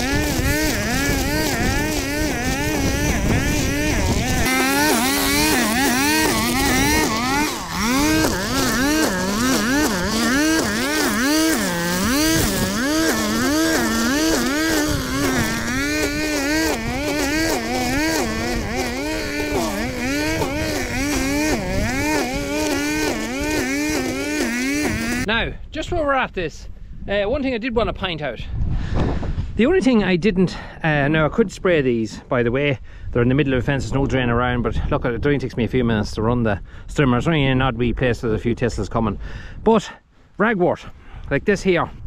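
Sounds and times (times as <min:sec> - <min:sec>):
strimmer engine cutting weeds: 0:00.0 - 0:25.3.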